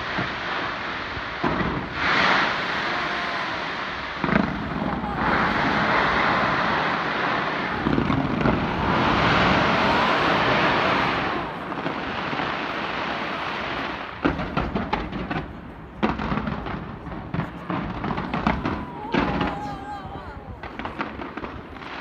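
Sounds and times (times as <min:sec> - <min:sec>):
fireworks bangs: 0:00.0 - 0:22.0
fireworks crackling: 0:00.0 - 0:22.0.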